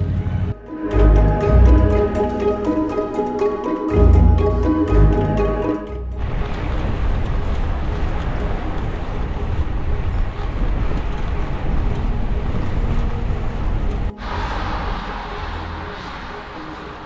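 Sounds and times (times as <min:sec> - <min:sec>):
wind rushing over microphone: 0:06.2 - 0:17.0.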